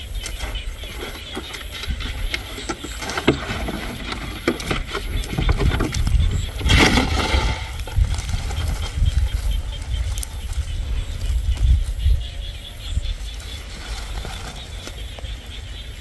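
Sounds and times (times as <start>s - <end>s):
plastic jug and sack handled: 0.0s - 9.6s
wind rumbling on microphone: 0.0s - 16.0s.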